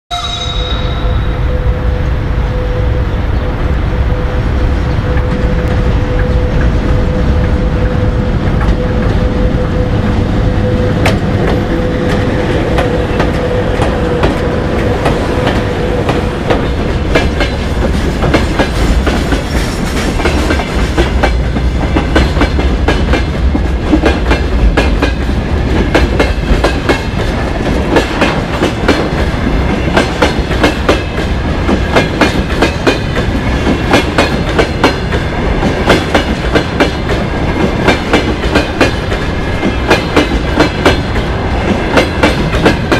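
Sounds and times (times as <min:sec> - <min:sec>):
electric locomotive humming: 0:00.1 - 0:42.9
train wheels clacking over rail joints: 0:11.0 - 0:42.9.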